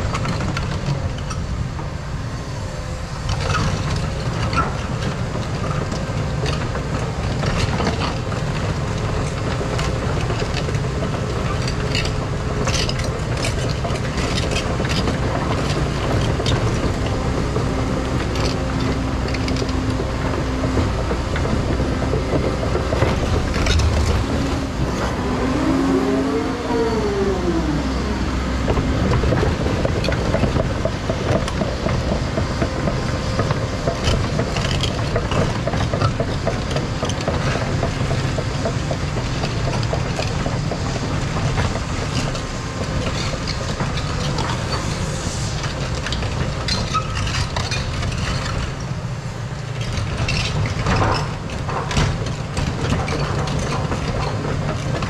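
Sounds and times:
excavator diesel engine: 0.0s - 55.0s
hydraulic whine: 20.7s - 30.6s.

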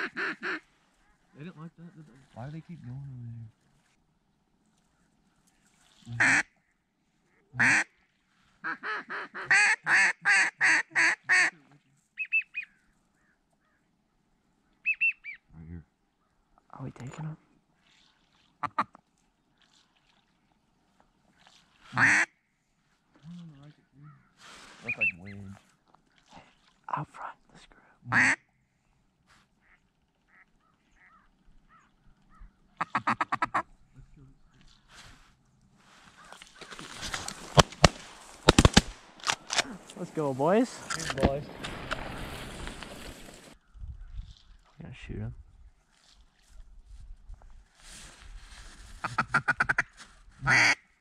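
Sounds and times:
duck call quacks: 0.0s - 1.2s, 6.2s - 6.5s, 7.6s - 7.9s, 8.6s - 11.6s, 21.9s - 22.3s, 28.1s - 28.4s, 32.8s - 33.7s, 49.0s - 50.8s.

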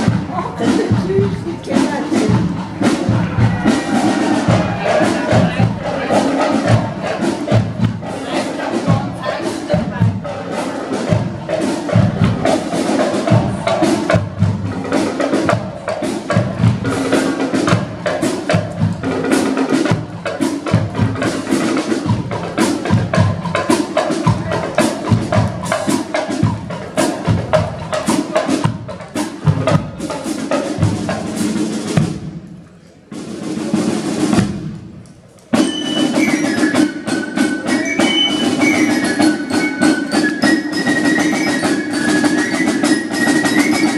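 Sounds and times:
wind instruments high melody: 0.0s - 16.2s, 35.5s - 43.9s
snare and bass drums marching beat: 0.0s - 43.9s.

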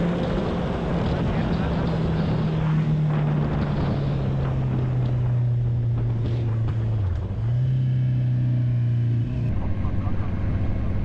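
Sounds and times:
wind noise: 0.0s - 7.5s
motorcycle engine running: 0.0s - 11.0s.

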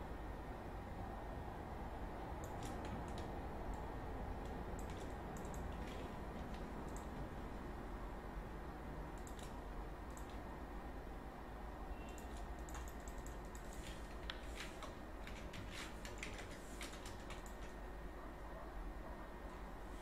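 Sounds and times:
low steady hum: 0.0s - 20.0s
keyboard keystrokes: 2.4s - 7.2s, 9.2s - 10.4s, 12.1s - 17.8s.

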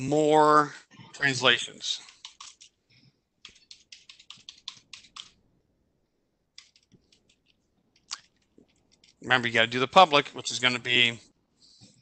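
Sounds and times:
faint keyboard typing: 1.8s - 5.5s, 6.5s - 9.7s.

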